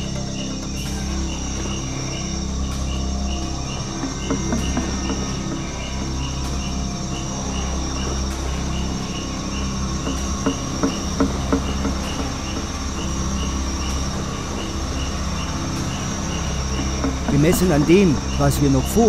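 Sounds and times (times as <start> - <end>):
diesel engine running slowly: 0.0 - 19.0
insects shrilling: 0.0 - 19.0.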